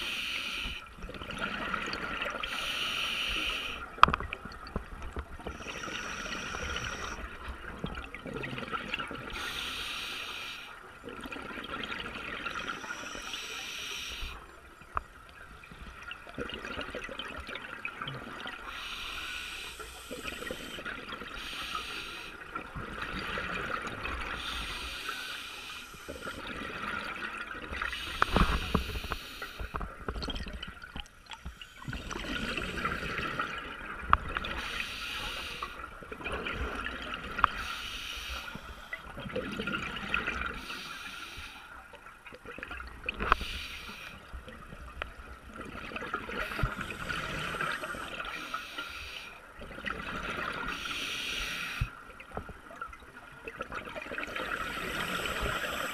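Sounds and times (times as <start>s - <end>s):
gurgle of exhaled bubbles: 1.0s - 2.7s, 3.9s - 9.4s, 22.4s - 24.6s, 26.1s - 34.6s, 38.9s - 40.7s, 44.2s - 48.5s, 49.6s - 50.9s
regulator hissing inhalation: 2.5s - 3.8s, 5.6s - 7.2s, 12.7s - 14.4s, 18.7s - 20.8s, 34.6s - 35.8s, 43.3s - 44.2s, 46.4s - 49.4s, 50.7s - 51.9s, 54.6s - 55.9s.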